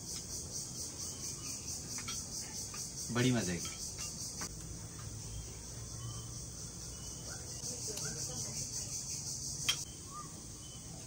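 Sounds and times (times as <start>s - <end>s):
insects trilling: 0.0s - 11.0s.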